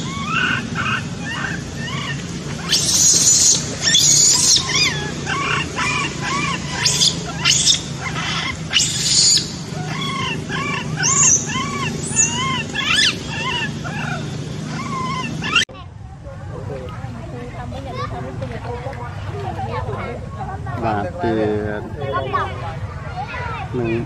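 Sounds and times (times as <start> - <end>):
baby monkey squeaky calls: 0.0 - 15.6
monkey shrill screams: 0.0 - 15.6.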